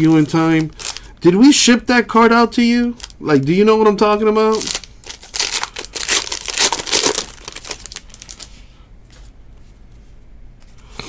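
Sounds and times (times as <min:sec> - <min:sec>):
foil wrapper crinkling and tearing: 0:00.0 - 0:01.3, 0:02.9 - 0:03.3, 0:04.0 - 0:08.6
cards rustling and clicking: 0:04.6 - 0:08.5.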